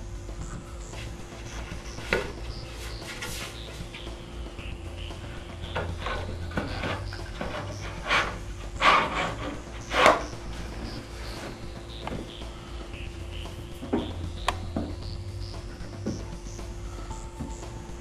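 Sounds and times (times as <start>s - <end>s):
wooden panel scraping in grooves: 5.2s - 12.2s.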